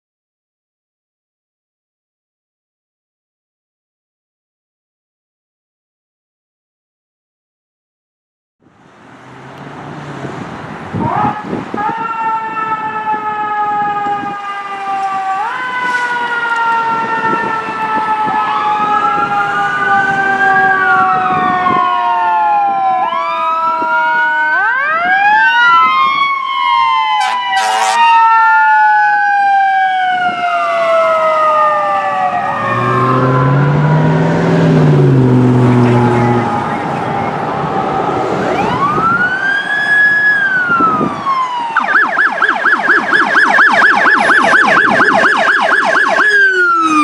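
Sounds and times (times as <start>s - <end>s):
electronic siren wailing: 11.0s - 47.0s
horn blasts: 27.2s - 28.1s.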